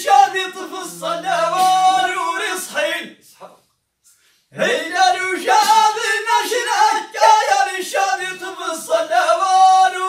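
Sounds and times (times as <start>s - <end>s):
men singing without instruments: 0.0s - 3.2s, 4.6s - 10.0s.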